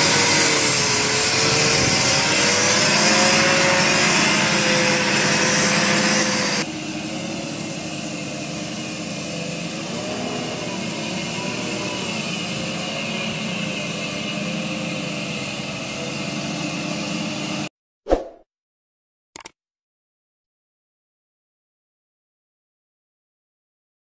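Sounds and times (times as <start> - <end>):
truck diesel engine droning: 5.8 - 17.6.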